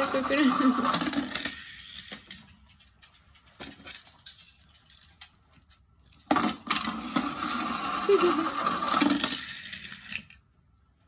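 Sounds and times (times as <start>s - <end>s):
toy car clattering down plastic ramp: 0.0s - 2.4s, 6.2s - 10.4s
faint clicks of small toys: 1.9s - 6.2s.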